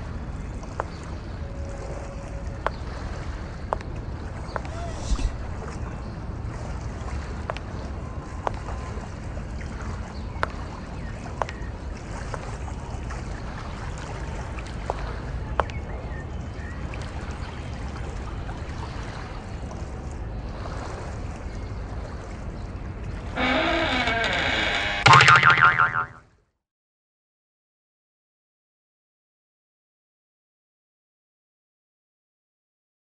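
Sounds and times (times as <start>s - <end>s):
low outdoor rumble: 3.4s - 10.0s.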